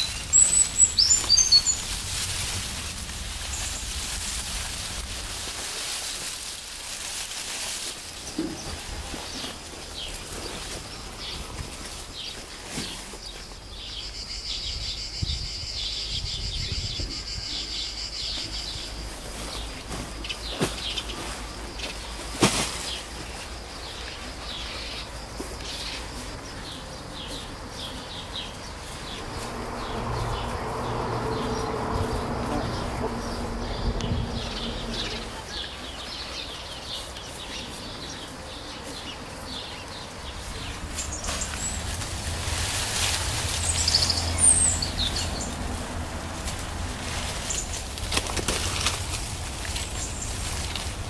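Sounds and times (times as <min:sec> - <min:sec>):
bird chirping: 0:00.0 - 0:05.1, 0:08.3 - 0:22.3, 0:31.3 - 0:45.9
rustling sacks and dry leaves: 0:00.0 - 0:15.0, 0:17.5 - 0:51.0
insects chirping: 0:00.0 - 0:51.0.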